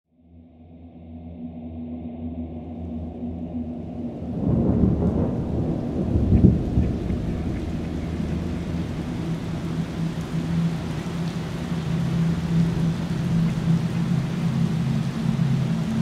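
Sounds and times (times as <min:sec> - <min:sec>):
low steady drone: 0:00.2 - 0:16.0
steady rain: 0:03.6 - 0:16.0
thunder rumbling: 0:03.8 - 0:16.0.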